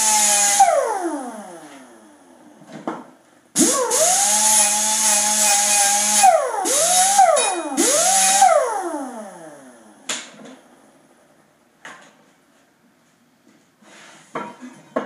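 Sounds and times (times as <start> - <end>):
electric grinder whining: 0.0 - 1.8, 3.6 - 9.3.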